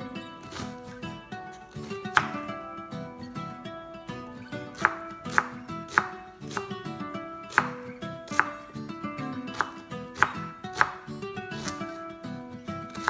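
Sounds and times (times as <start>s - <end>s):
background music: 0.0s - 13.0s
knife chopping on wooden board: 0.5s - 1.0s, 1.8s - 2.5s, 4.7s - 6.8s, 7.5s - 8.7s, 9.5s - 12.0s.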